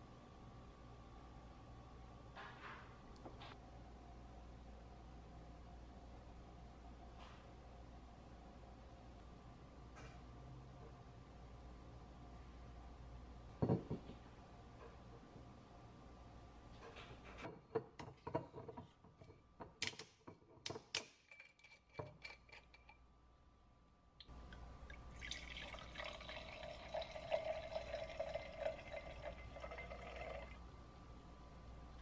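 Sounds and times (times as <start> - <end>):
wine pouring into a glass: 24.9 - 30.6.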